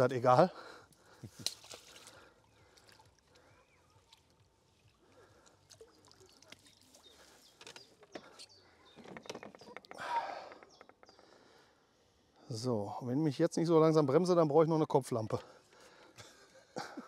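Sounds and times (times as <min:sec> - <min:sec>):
water splashing and sloshing: 0:00.9 - 0:09.6.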